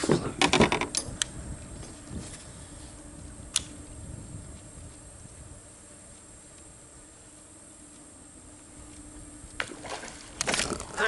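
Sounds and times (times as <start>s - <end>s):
high-pitched hum: 0.0s - 11.0s
insects droning: 0.0s - 11.0s.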